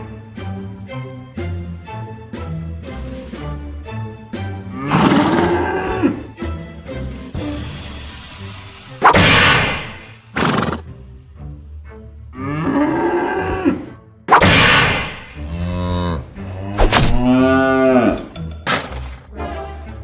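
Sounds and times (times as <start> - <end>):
background music: 0.0 - 20.0
cow mooing: 12.4 - 14.0, 15.4 - 18.4.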